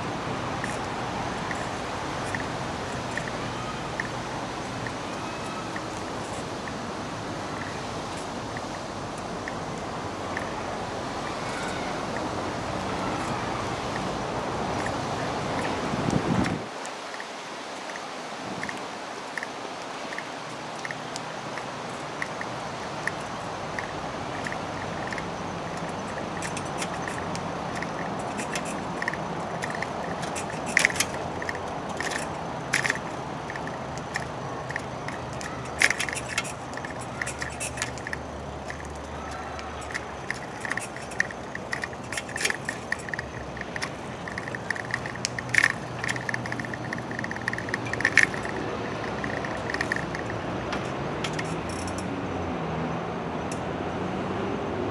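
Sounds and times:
low outdoor hum: 0.0s - 54.9s
metal clinking and jangling: 23.1s - 52.0s.

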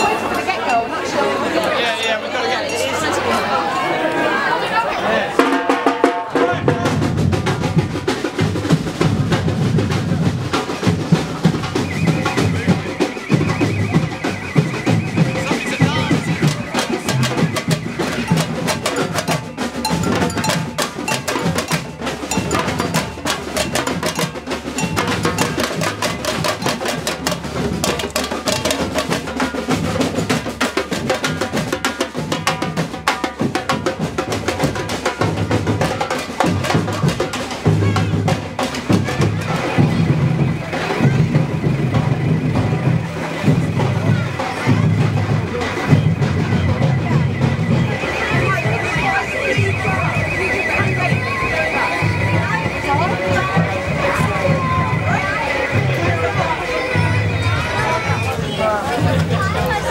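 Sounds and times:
snare drum strokes and rolls: 5.3s - 59.9s
steady bass drum beat: 5.4s - 59.9s.

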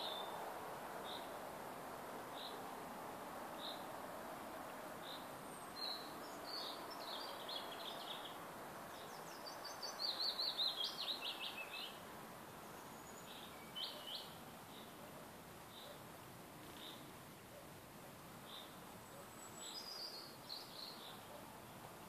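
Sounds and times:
songbird singing: 0.0s - 1.6s, 2.2s - 22.0s
background hiss: 0.0s - 22.0s.

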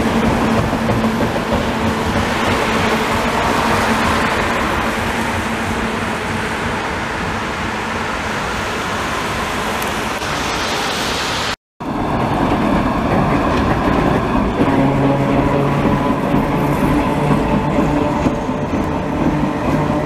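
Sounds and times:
wet road traffic noise: 0.0s - 11.6s
tram passing on rails: 0.0s - 20.0s.

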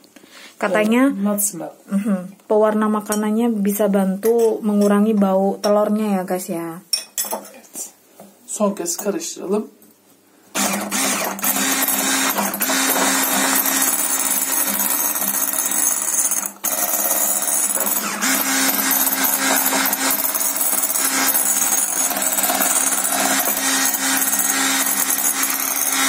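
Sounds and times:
electric hand mixer running: 10.6s - 26.0s.

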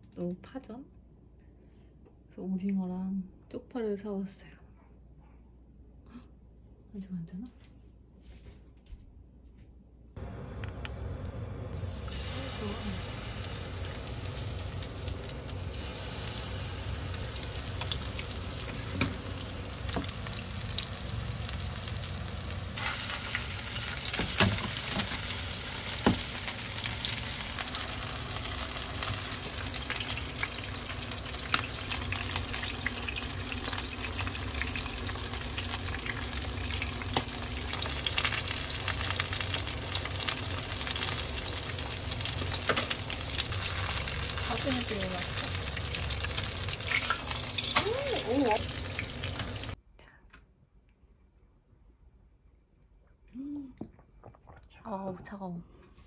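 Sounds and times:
batter sizzling in hot oil: 11.7s - 49.8s.

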